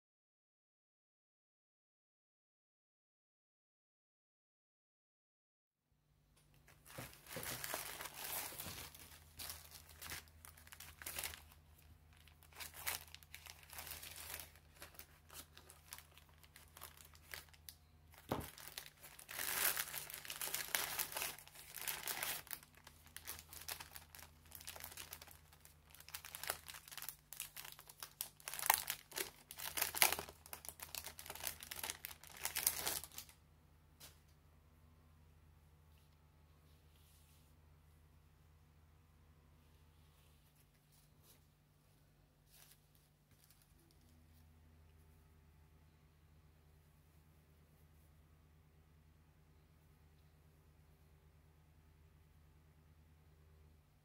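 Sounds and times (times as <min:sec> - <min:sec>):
plastic bags crinkling: 0:06.6 - 0:33.3, 0:42.5 - 0:44.2.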